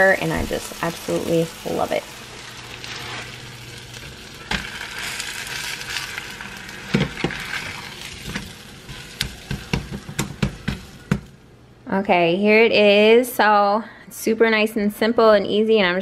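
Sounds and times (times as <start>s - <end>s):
food sizzling in frying pan: 0.0s - 11.4s
spatula tapping pan: 8.2s - 11.3s.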